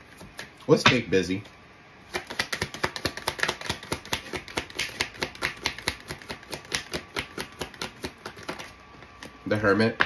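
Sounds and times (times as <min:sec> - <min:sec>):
cards being shuffled: 0:02.1 - 0:09.4.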